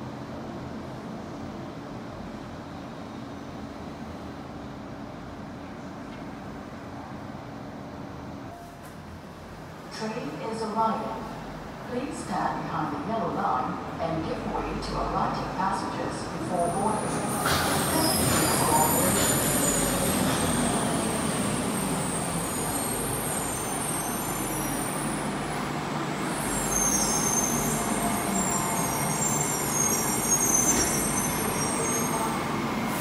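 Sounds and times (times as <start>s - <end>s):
light rail car rolling: 16.6s - 33.0s.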